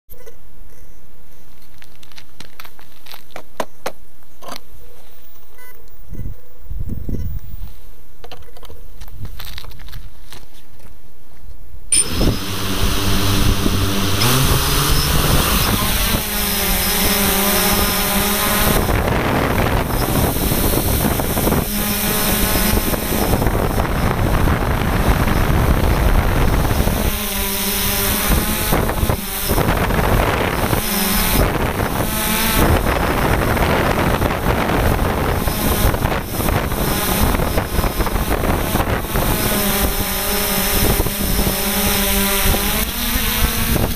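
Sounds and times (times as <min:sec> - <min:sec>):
drone motors whining: 0:11.9 - 0:43.9.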